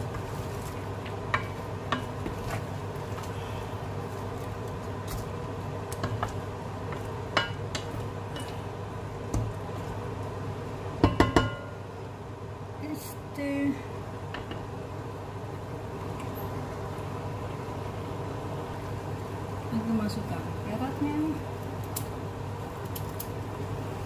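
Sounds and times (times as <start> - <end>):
wooden spatula stirring meat: 0.0 - 10.3
steady hum: 0.0 - 24.0.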